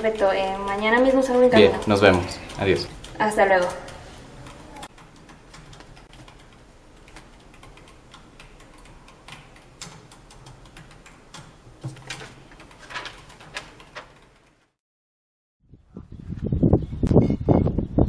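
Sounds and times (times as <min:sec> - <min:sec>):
faint room hum: 0:00.0 - 0:14.6
paper rustling: 0:11.8 - 0:14.5.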